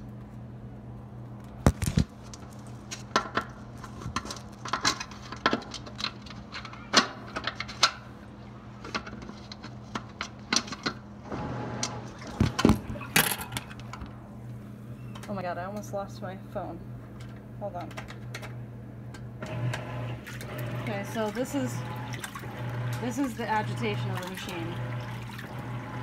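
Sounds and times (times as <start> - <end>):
steady low hum: 7.1 - 26.0.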